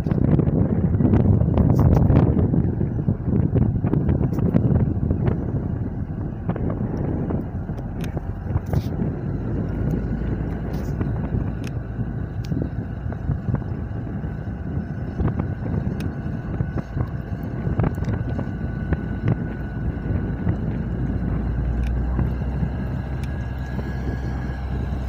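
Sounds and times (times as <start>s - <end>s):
diesel locomotive rumbling: 0.0s - 25.0s.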